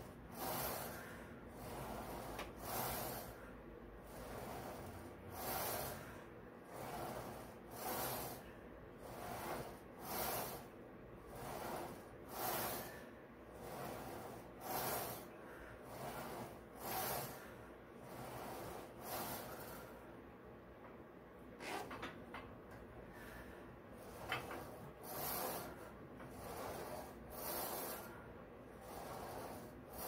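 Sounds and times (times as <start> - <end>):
person breathing heavily: 0.1 - 20.2, 23.0 - 24.2.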